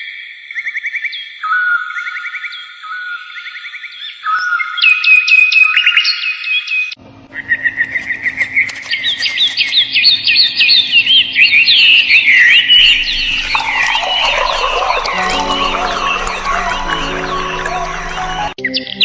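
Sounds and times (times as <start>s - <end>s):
bird chirps: 0.0s - 19.0s
low steady music tones: 13.6s - 19.0s.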